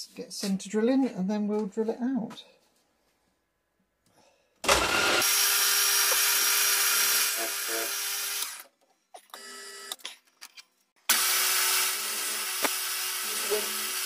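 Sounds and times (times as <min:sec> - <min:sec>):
milling machine spindle humming: 0:11.1 - 0:14.0.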